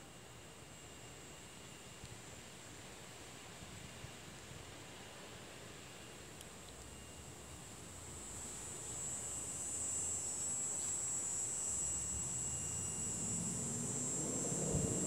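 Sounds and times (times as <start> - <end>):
high insect buzz: 8.4 - 15.0.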